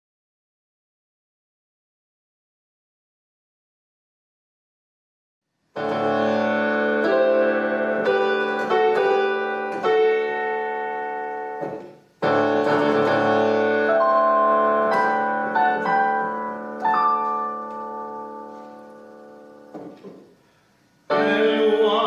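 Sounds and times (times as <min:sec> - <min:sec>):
solo piano chords: 0:05.8 - 0:20.3, 0:21.1 - 0:22.0.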